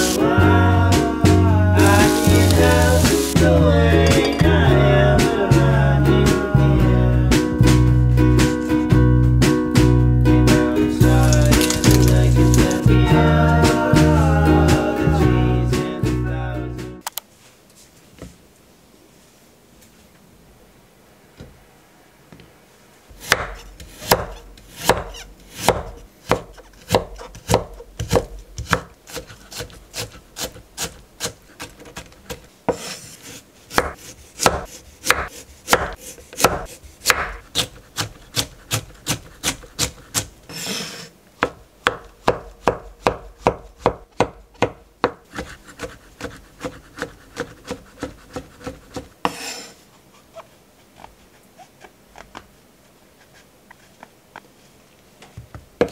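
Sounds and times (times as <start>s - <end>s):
knife chopping on wooden board: 11.3s - 12.8s, 23.2s - 40.3s, 41.4s - 49.7s
knife scraping on board: 23.3s - 41.1s, 45.3s - 52.4s.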